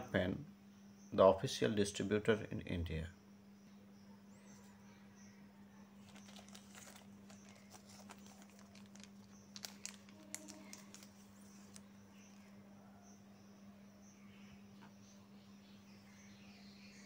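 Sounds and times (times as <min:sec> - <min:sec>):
plastic sleeve crinkling: 0:06.0 - 0:11.9.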